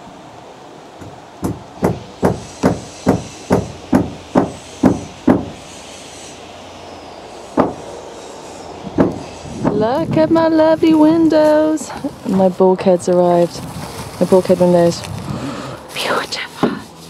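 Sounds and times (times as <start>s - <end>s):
hammer blows: 1.0s - 6.3s, 7.5s - 7.9s.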